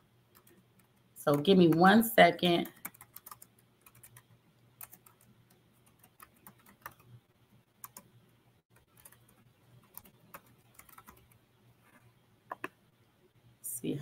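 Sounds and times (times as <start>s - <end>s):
low steady hum: 0.0s - 14.0s
keyboard typing and clicking: 0.3s - 1.9s, 2.6s - 7.2s, 7.8s - 11.4s, 12.5s - 12.8s.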